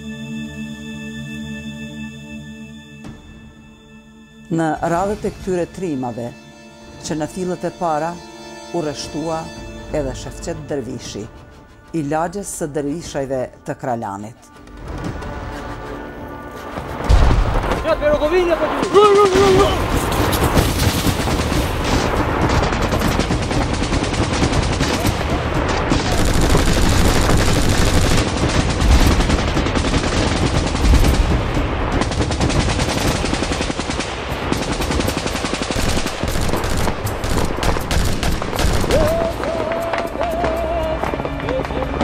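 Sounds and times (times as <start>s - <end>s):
heavy low booms: 16.9s - 23.8s
automatic gunfire: 20.8s - 39.2s.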